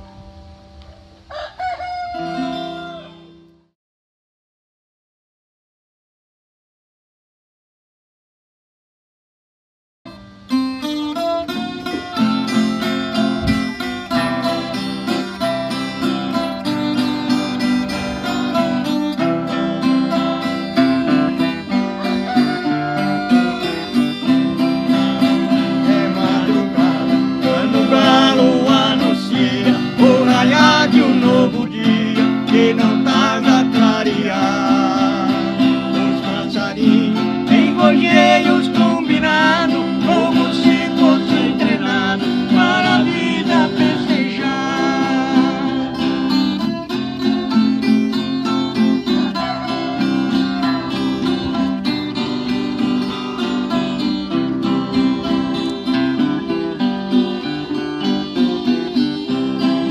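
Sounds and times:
acoustic guitars strumming: 0:10.1 - 0:59.9
man singing: 0:23.8 - 0:46.4.

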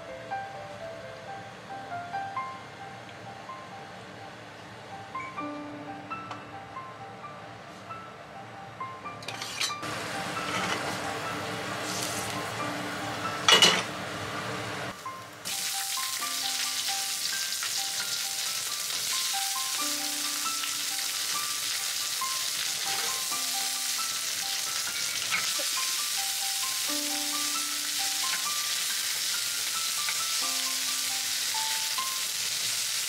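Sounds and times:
background music with plucked notes: 0:04.9 - 0:33.0
tomatoes sizzling in hot oil: 0:09.9 - 0:33.0.

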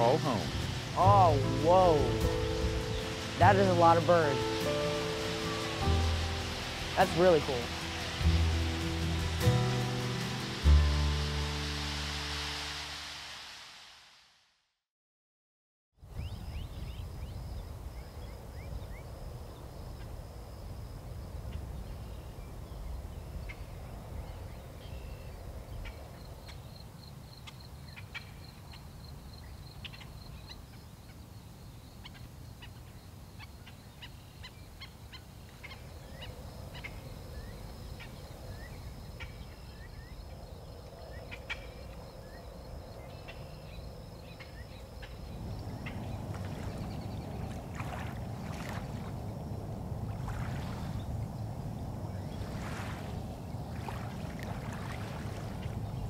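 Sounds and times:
low wind rumble: 0:00.0 - 0:14.0, 0:16.0 - 0:26.8, 0:34.6 - 0:56.0.

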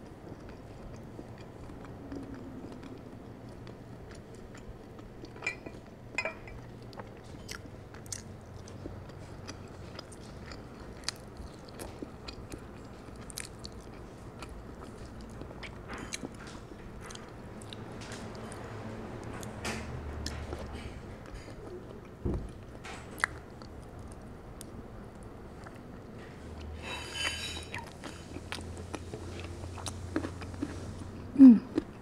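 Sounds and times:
person chewing: 0:00.1 - 0:05.8, 0:06.6 - 0:17.8, 0:26.6 - 0:32.0.

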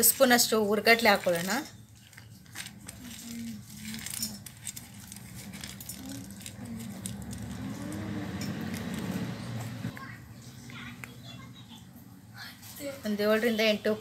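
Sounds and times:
dry grains rattling into metal jar: 0:00.0 - 0:09.5.

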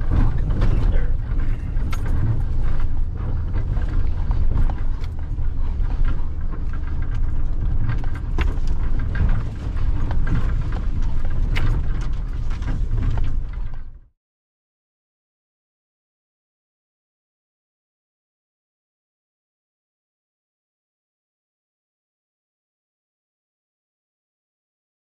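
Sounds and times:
cab rattles from bumps: 0:00.0 - 0:14.0
vehicle rumbling on gravel road: 0:00.0 - 0:14.1.

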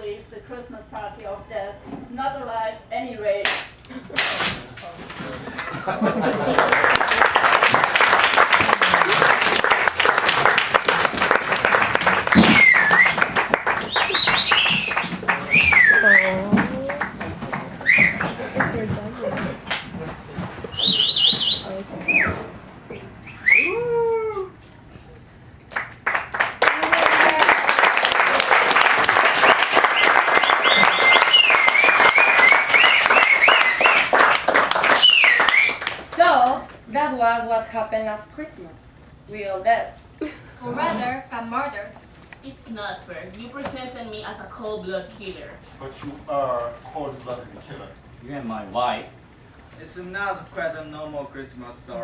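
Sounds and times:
audience applauding: 0:05.4 - 0:20.2, 0:25.7 - 0:36.3
whistles and whoops: 0:12.3 - 0:16.5, 0:17.8 - 0:18.3, 0:23.2 - 0:24.6, 0:29.3 - 0:34.2, 0:34.8 - 0:36.0
high whoops: 0:23.4 - 0:24.7, 0:26.6 - 0:27.8.

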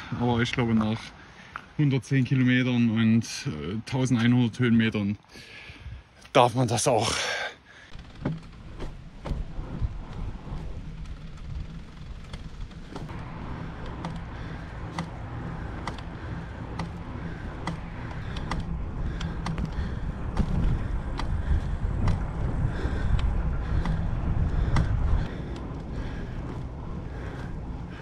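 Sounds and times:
wind rumbling on microphone: 0:07.9 - 0:28.0
light bike clicks: 0:10.2 - 0:28.0.

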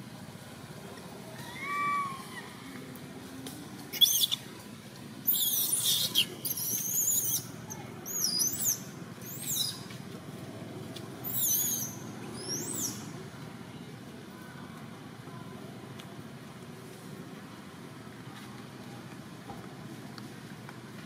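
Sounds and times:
baby monkey crying: 0:04.0 - 0:04.4, 0:05.3 - 0:07.4.

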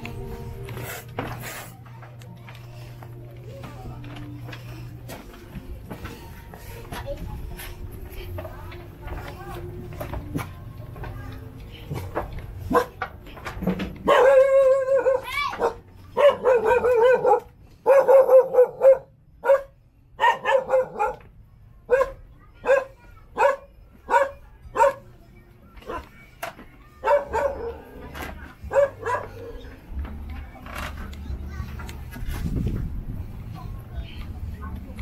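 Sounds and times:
dog barking: 0:12.7 - 0:13.0, 0:14.0 - 0:21.3, 0:21.9 - 0:25.1, 0:27.0 - 0:28.1, 0:28.7 - 0:29.6.

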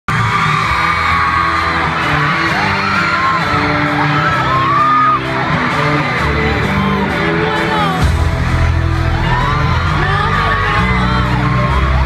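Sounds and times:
fans screaming and whooping: 0:00.1 - 0:12.0
loud concert music with bass: 0:00.1 - 0:12.0.

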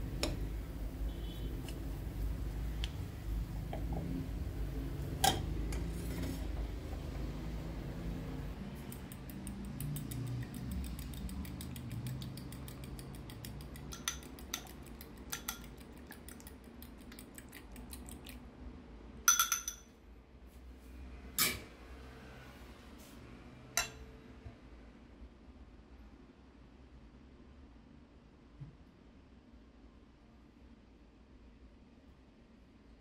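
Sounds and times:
utensils scraping dough in bowl: 0:05.7 - 0:07.2, 0:08.8 - 0:16.4
metal clinks against bowl: 0:13.3 - 0:15.8, 0:19.3 - 0:20.0, 0:23.8 - 0:24.0.

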